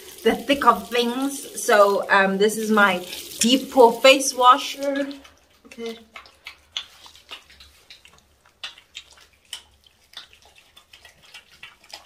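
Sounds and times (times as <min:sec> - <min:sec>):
wet hands rubbing lather on face: 0:06.2 - 0:11.8.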